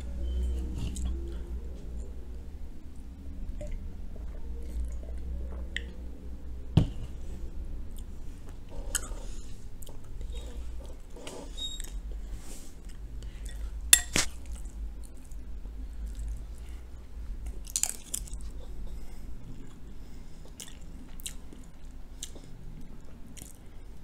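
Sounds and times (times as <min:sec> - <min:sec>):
chewing: 0:00.4 - 0:01.5, 0:12.8 - 0:23.9
spoon clinking on glass bowl: 0:14.0 - 0:14.2.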